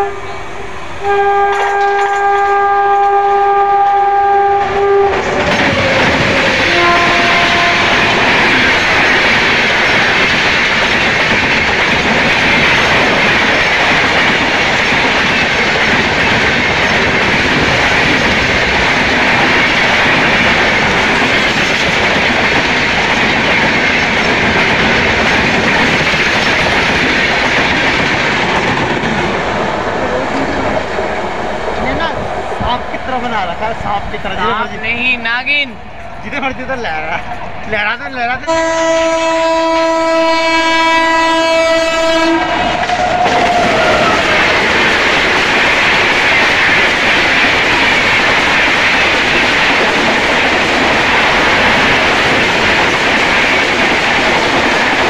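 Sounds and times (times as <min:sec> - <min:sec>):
locomotive horn: 0:00.0 - 0:08.5, 0:38.4 - 0:44.4
train wheels clattering on rails: 0:01.4 - 0:03.2, 0:04.4 - 0:33.4, 0:38.6 - 0:55.0.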